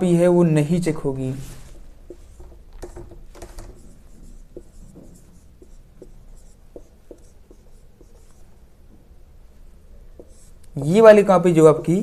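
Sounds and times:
faint marker scratching: 1.2s - 12.0s
marker squeaking on whiteboard: 2.0s - 8.7s, 9.9s - 11.1s.

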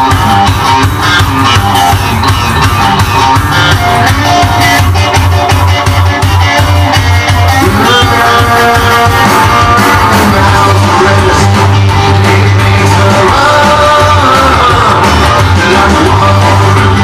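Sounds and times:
guitar: 0.0s - 17.0s
rock and roll record: 0.0s - 17.0s
person singing: 6.9s - 17.0s.

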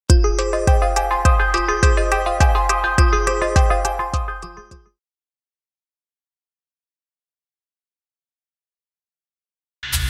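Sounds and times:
bright ringing jingle notes: 0.1s - 4.9s.

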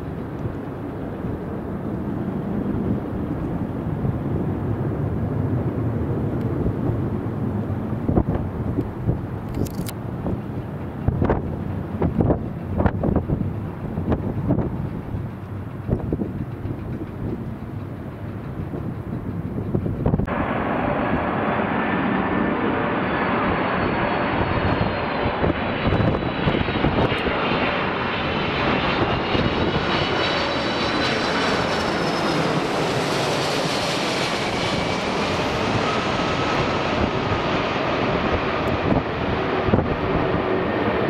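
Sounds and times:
jet airliner passing overhead: 0.0s - 41.0s.

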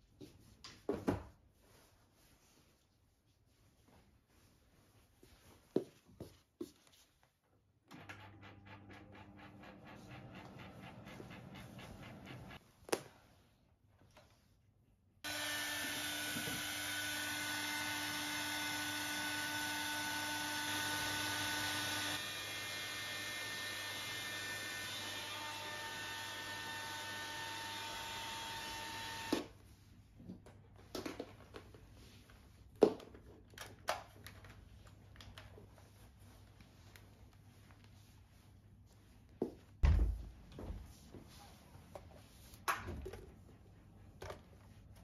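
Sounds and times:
hair dryer running: 15.3s - 29.5s.

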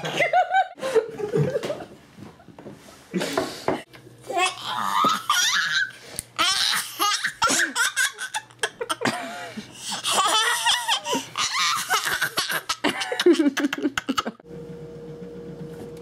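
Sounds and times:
toddler laughing: 4.3s - 9.1s, 9.8s - 14.4s.

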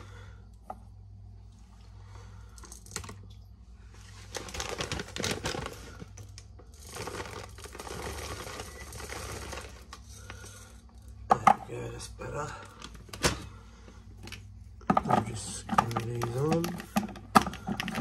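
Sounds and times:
peppercorns rattling: 4.0s - 12.8s.

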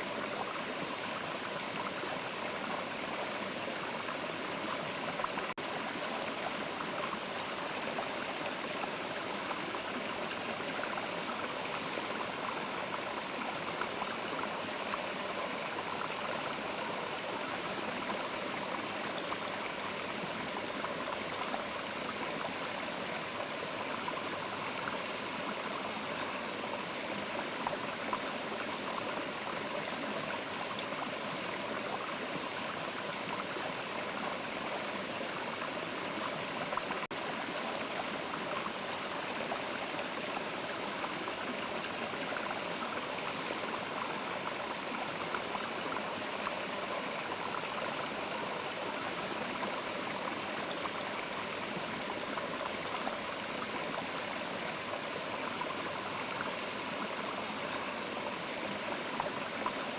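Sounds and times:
river flowing: 0.0s - 59.9s.

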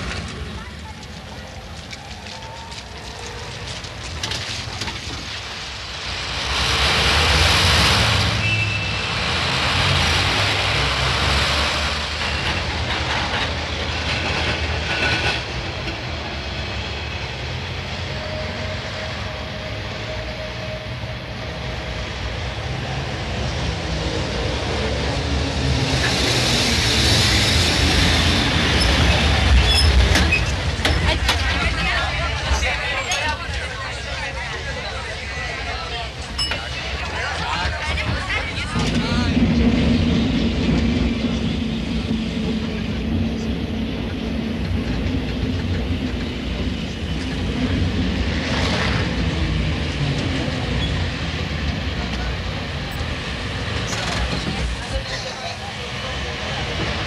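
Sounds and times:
train rumbling and clattering: 0.0s - 57.0s
wheel squeals: 8.3s - 9.4s, 28.7s - 33.4s.

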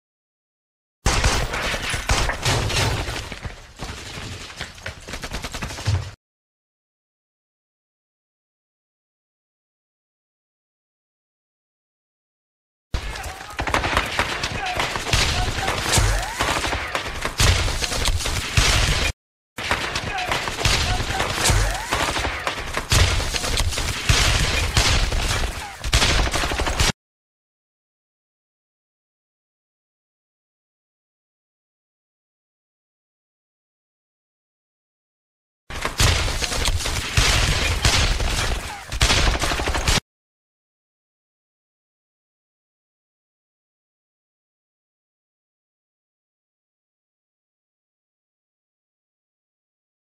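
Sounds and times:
gunfire: 1.1s - 3.4s, 13.0s - 27.0s, 35.7s - 40.0s
rapid rifle and machine-gun fire: 1.1s - 3.4s, 5.0s - 6.2s, 13.0s - 27.0s, 35.7s - 40.0s.

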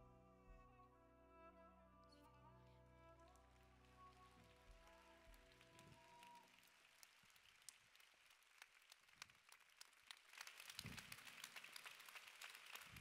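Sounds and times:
audience applause: 4.1s - 13.0s.

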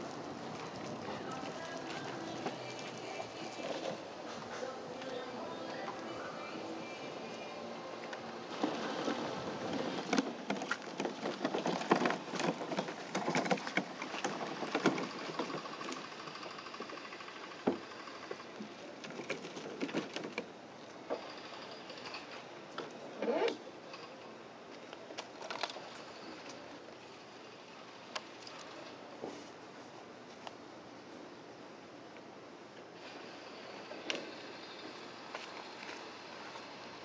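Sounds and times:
cart crunching on gravel shore: 8.5s - 16.1s.

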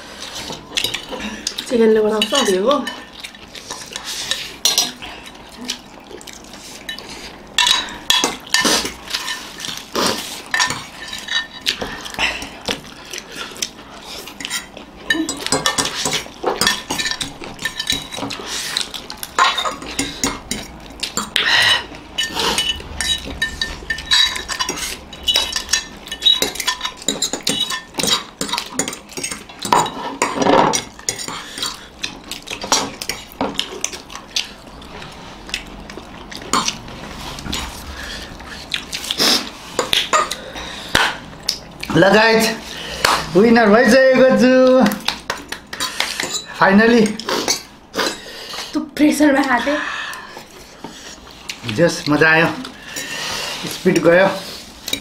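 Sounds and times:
forks clinking on ceramic plates: 2.1s - 3.1s, 10.5s - 12.5s, 14.4s - 18.4s, 19.4s - 31.8s, 45.8s - 47.7s.

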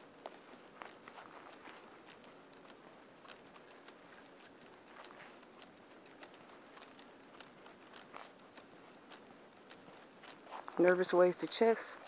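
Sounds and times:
footsteps crunching on snow: 0.2s - 5.7s, 9.8s - 12.0s.

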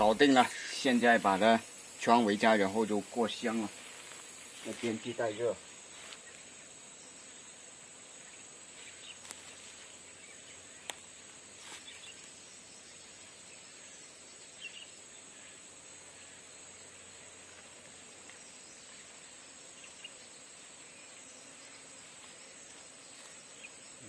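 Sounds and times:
high-pitched insect chorus: 0.0s - 24.0s
soft rustles: 3.7s - 5.2s, 5.9s - 6.4s.

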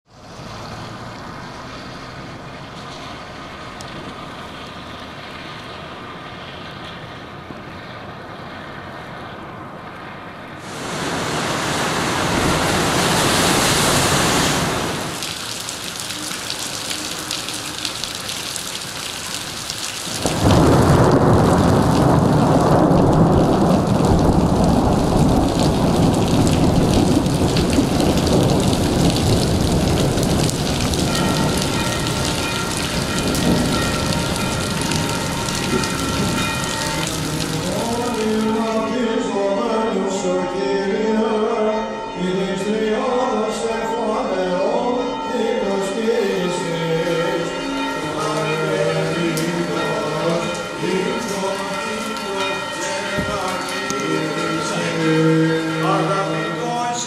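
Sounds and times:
steady rain: 0.1s - 8.1s, 10.6s - 39.0s, 46.2s - 57.0s
sea waves breaking: 10.6s - 38.8s
deep rumble of storm: 20.1s - 38.1s.

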